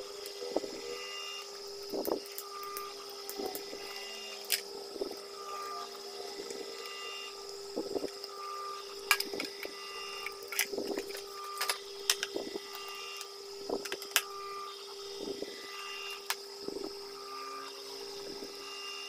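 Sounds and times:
steady hum: 0.0s - 19.0s
plastic parts clicking: 9.0s - 14.3s.

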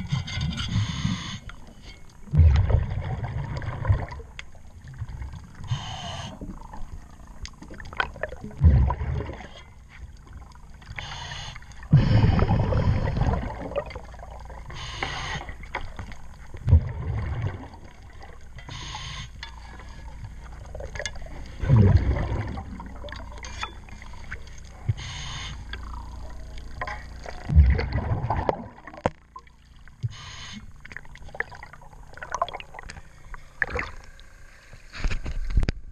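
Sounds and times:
bubbly exhalation rumble: 2.2s - 10.5s, 11.8s - 14.7s, 15.4s - 18.5s, 19.8s - 24.9s, 25.8s - 29.5s, 31.0s - 34.1s
hissing regulator inhalation: 5.7s - 6.4s, 11.0s - 13.4s, 14.7s - 15.6s, 18.7s - 19.4s, 24.9s - 25.7s, 30.1s - 30.7s.

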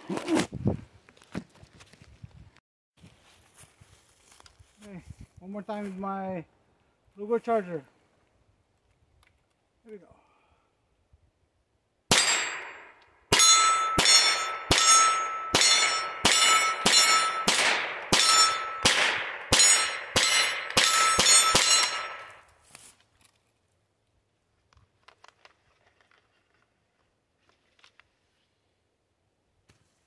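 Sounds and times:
pistol shots with metallic ring: 12.1s - 22.4s.

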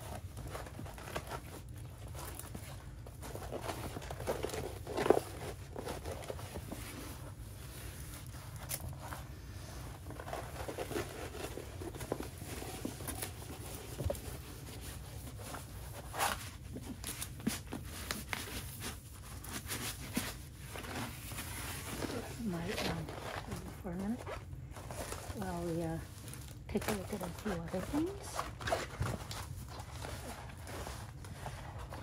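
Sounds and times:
plastic and paper crinkling: 0.0s - 32.0s.

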